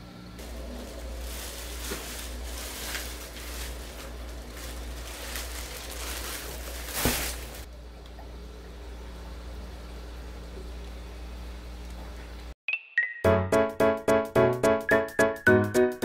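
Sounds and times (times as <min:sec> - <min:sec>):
low steady hum: 0:00.0 - 0:12.5
fabric and stuffing rustling: 0:00.4 - 0:07.7.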